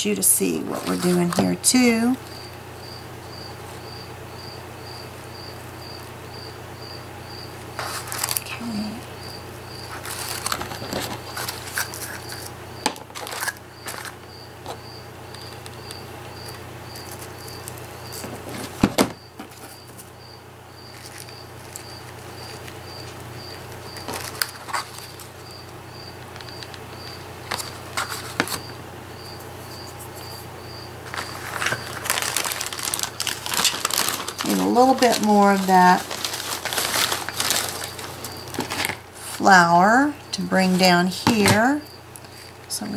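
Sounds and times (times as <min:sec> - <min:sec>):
hands rustling paper: 0:07.7 - 0:09.0, 0:09.7 - 0:20.2, 0:20.8 - 0:28.8, 0:29.4 - 0:41.2
plastic bag crinkling: 0:07.7 - 0:09.0, 0:09.7 - 0:18.8, 0:20.8 - 0:28.7, 0:31.0 - 0:39.4.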